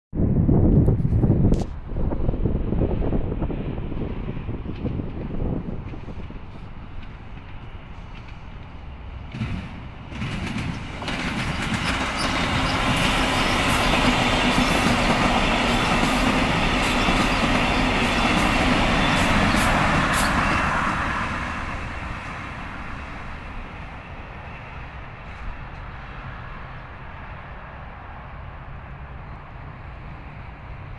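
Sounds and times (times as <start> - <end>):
passenger train passing: 0.2 - 30.9
wheels clicking on rails: 4.7 - 20.5.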